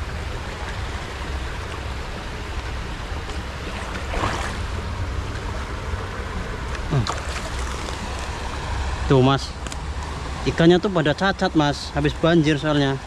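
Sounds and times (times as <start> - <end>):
water swish: 0.0 - 9.2
water running over rocks: 0.0 - 9.3.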